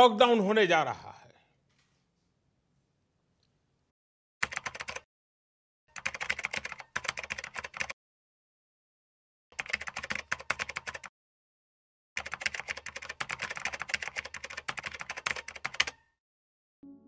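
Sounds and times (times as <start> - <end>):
rapid typing on keys: 4.4 - 5.1, 6.0 - 8.0, 9.6 - 11.1, 12.2 - 16.1.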